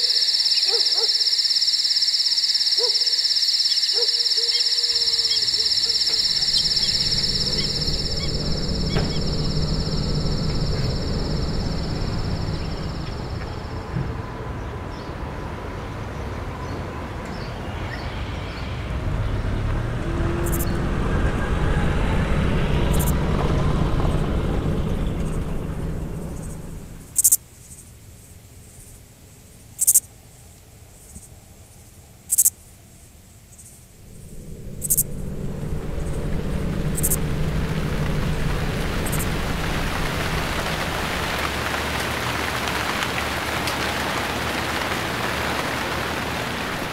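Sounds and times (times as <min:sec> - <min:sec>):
high insect trill: 0:00.0 - 0:13.9, 0:20.3 - 0:29.0, 0:29.8 - 0:30.0, 0:32.3 - 0:32.6, 0:33.5 - 0:43.5
low rumble of city traffic: 0:04.0 - 0:28.1, 0:29.4 - 0:46.9.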